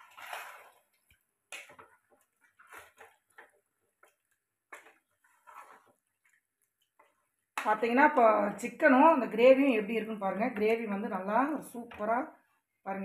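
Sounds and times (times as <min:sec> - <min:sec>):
spatula scraping a pot: 0:01.5 - 0:07.3.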